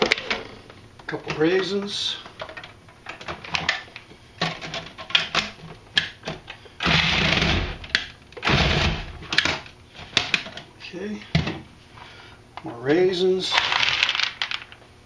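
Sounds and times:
food processor chopping: 6.8 - 9.2.

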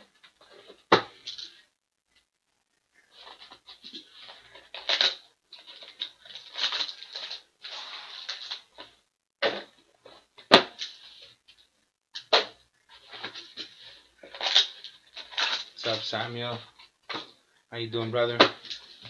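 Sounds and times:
foil packs crinkling: 3.1 - 9.0, 12.9 - 17.3.

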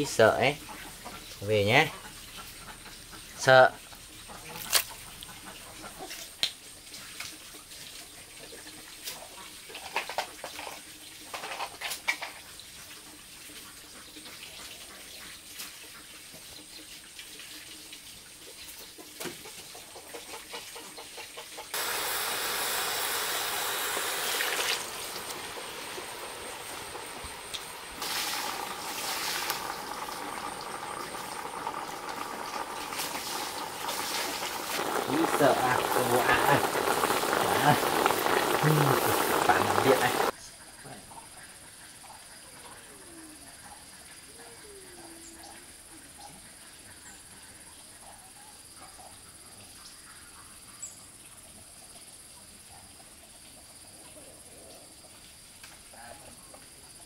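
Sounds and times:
water running: 21.8 - 40.4.

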